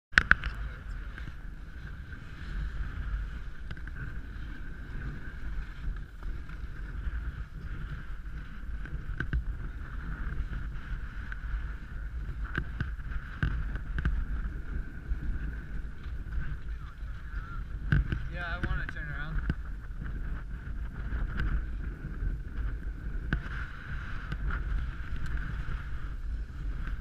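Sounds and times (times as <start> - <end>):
wind buffeting microphone: 0.1 - 27.0
skis and poles clicking on snow: 0.2 - 27.0.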